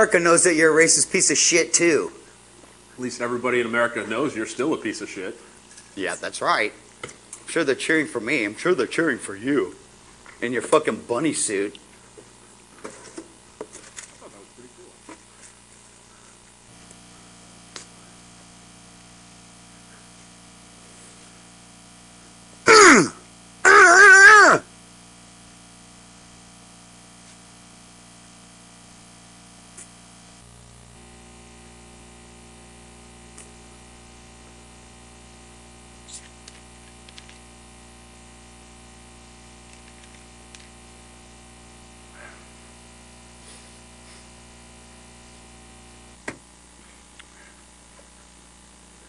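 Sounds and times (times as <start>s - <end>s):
electrical mains hum: 0.0s - 49.0s.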